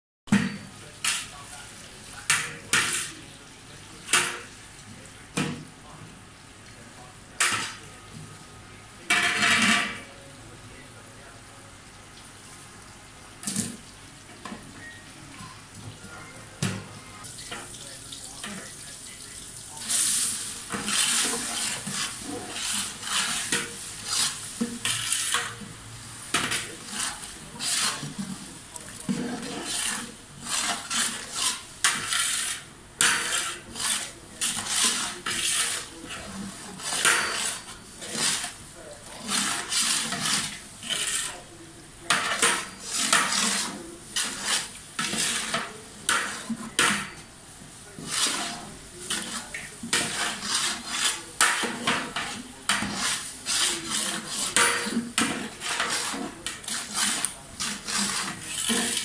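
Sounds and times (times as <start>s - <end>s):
metal ladle scraping a pot: 2.2s - 3.2s, 19.9s - 25.7s, 26.3s - 47.3s, 47.9s - 59.0s.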